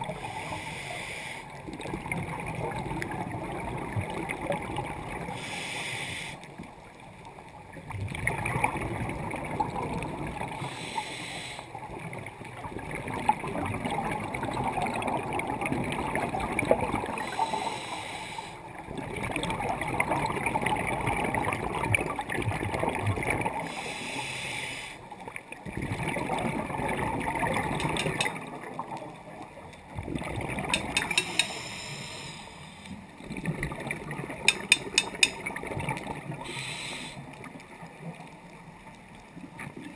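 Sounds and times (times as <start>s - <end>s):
regulator hiss on inhale: 0.0s - 1.6s, 5.3s - 6.6s, 10.6s - 11.8s, 17.2s - 18.7s, 23.7s - 25.2s, 31.0s - 33.1s, 36.4s - 37.4s
sharp clicks: 27.8s - 28.4s, 30.7s - 31.6s, 34.5s - 35.4s.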